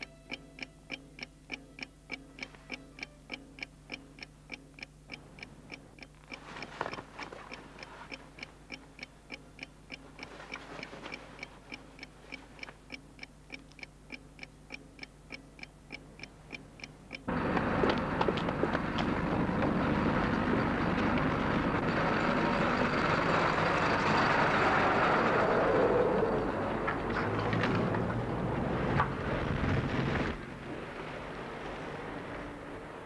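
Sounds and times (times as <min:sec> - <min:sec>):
clock ticking: 0:00.0 - 0:17.4.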